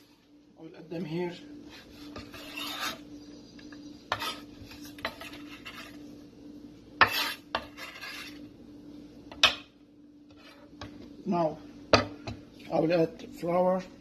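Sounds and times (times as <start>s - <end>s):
knife scraping on wooden board: 1.7s - 3.1s, 4.1s - 6.0s, 7.0s - 8.4s, 10.3s - 10.9s.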